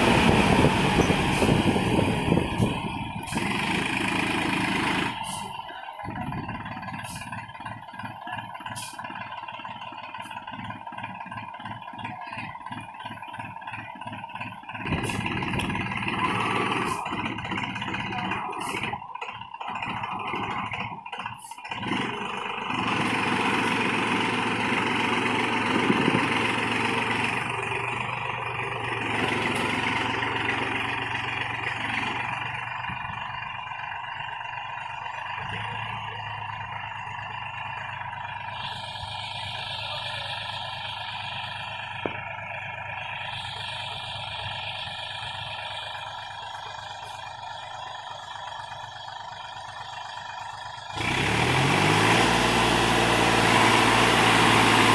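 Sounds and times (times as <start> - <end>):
tractor diesel engine under load: 0.0 - 54.9.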